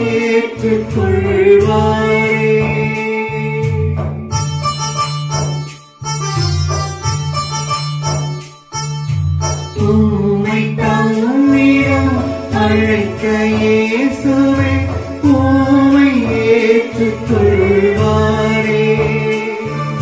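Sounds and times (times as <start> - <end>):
electronic keyboard: 0.0 - 20.0
person singing long notes: 9.8 - 20.0.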